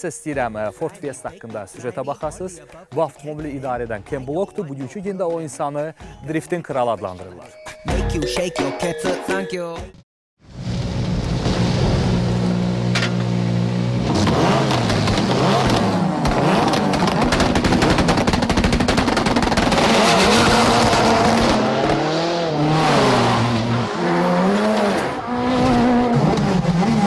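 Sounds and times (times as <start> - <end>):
exhaust crackling and popping: 10.5 - 22.1
rally car engine revving: 10.6 - 27.0.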